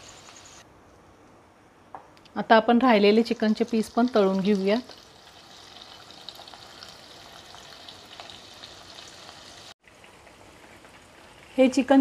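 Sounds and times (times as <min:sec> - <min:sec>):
chicken sizzling in hot oil: 0:00.0 - 0:00.6, 0:03.1 - 0:12.0.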